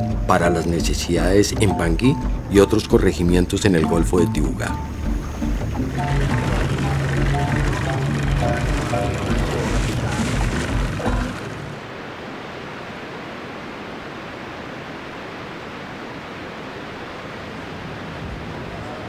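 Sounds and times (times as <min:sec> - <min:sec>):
surf hiss: 0:00.0 - 0:19.0
loud low hum: 0:04.8 - 0:11.8.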